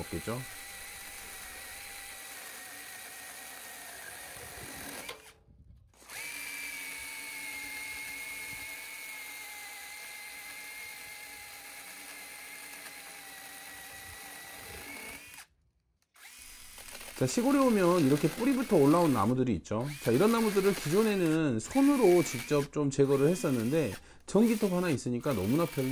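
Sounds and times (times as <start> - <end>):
electric chainsaw motor whining: 0.0 - 5.4, 6.0 - 25.9.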